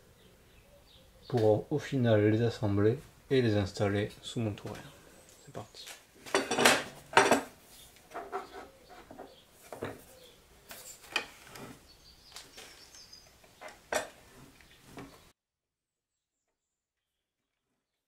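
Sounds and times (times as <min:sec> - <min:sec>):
wood pieces and tools clattering: 0:05.8 - 0:15.3.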